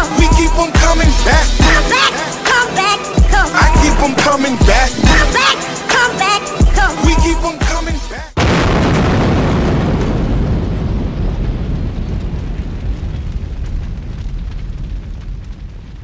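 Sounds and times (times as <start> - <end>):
loud boom with rumbling tail: 8.4 - 16.0.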